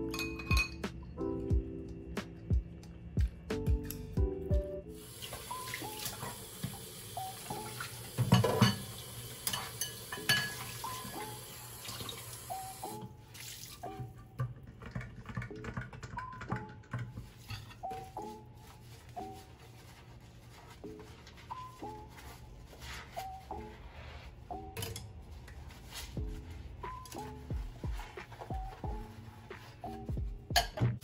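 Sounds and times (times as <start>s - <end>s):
crockery clinking: 0.0s - 0.9s, 9.5s - 11.1s
soft background music: 0.0s - 31.0s
sponge scrubbing: 17.2s - 24.5s, 25.2s - 30.1s.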